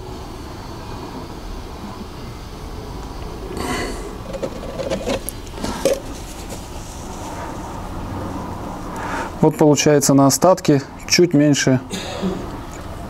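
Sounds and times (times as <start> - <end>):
low background hum: 0.0 - 13.0
plastic jug scraping: 3.9 - 7.6.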